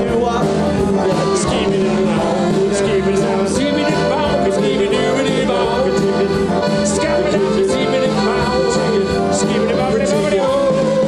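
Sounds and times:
accordions playing: 0:00.0 - 0:11.0
steady beat: 0:00.0 - 0:11.0.

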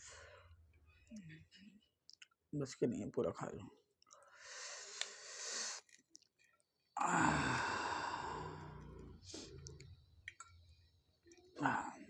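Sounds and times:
man sighing: 0:07.0 - 0:09.0.

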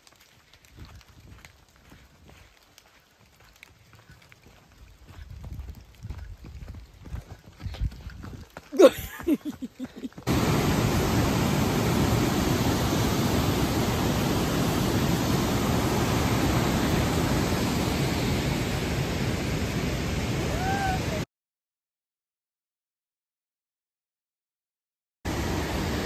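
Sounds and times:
whitewater rushing: 0:10.3 - 0:21.2, 0:25.3 - 0:26.0.

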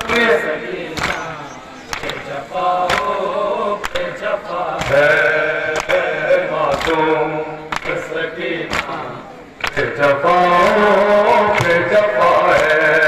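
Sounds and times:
men chanting a lament: 0:00.0 - 0:13.0
chest-beating slaps: 0:01.0 - 0:01.3, 0:01.9 - 0:03.2, 0:06.7 - 0:07.1, 0:07.7 - 0:08.0, 0:08.7 - 0:09.0.

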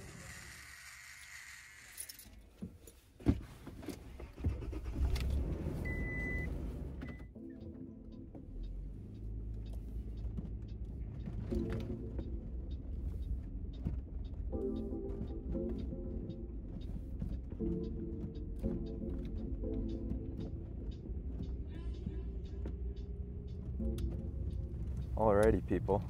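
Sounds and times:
vehicle engine rumbling: 0:02.4 - 0:26.0
short beep: 0:05.8 - 0:07.3.

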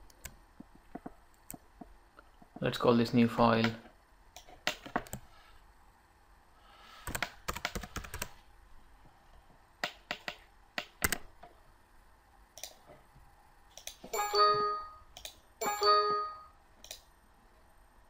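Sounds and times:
computer alert chimes: 0:14.2 - 0:15.0, 0:15.6 - 0:16.6.

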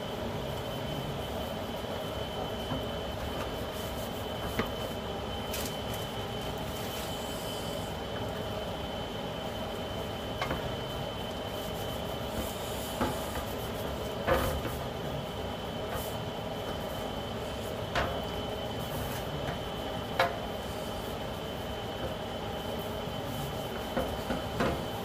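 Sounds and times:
faint high whine: 0:00.0 - 0:13.1
steady background hum: 0:00.0 - 0:25.0.

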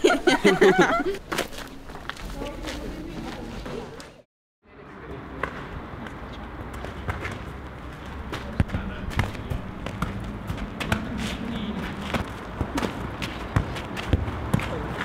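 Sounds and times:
ball thudding on hard ground: 0:08.2 - 0:15.0.

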